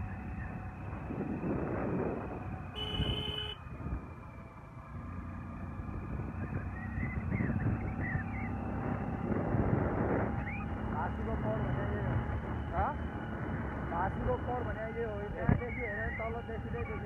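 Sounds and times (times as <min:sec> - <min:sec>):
vehicle engine and road noise: 0:00.0 - 0:17.0
short horn toot: 0:02.8 - 0:03.6.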